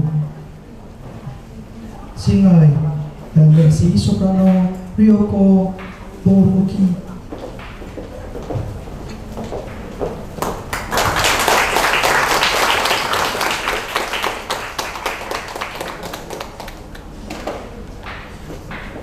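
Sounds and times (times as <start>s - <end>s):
small audience applauding: 10.4s - 18.2s.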